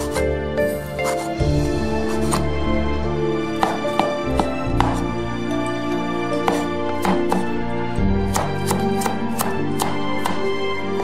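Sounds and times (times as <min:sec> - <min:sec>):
knife chopping on wooden board: 0:00.0 - 0:01.4, 0:02.1 - 0:02.5, 0:03.6 - 0:05.1, 0:06.4 - 0:07.6, 0:08.3 - 0:10.5
background music: 0:00.0 - 0:11.0.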